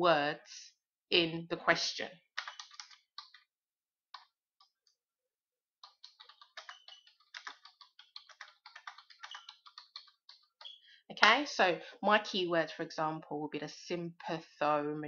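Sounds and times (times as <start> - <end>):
computer keyboard typing: 2.3 - 3.5, 5.8 - 10.8.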